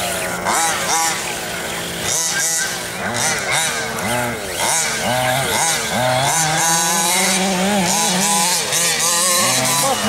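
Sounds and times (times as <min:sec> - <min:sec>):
small two-stroke engines revving: 0:00.0 - 0:10.0.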